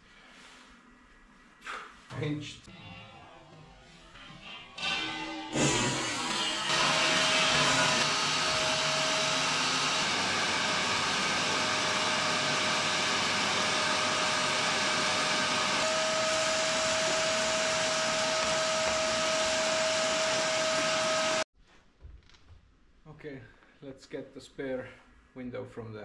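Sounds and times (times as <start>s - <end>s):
vacuum cleaner whining: 4.8s - 21.5s.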